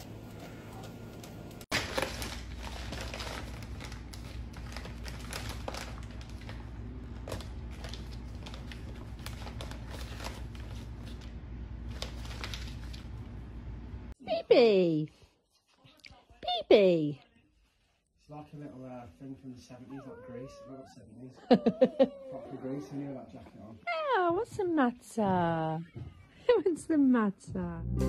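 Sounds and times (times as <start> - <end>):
plastic wrapping crinkling: 1.7 - 13.2.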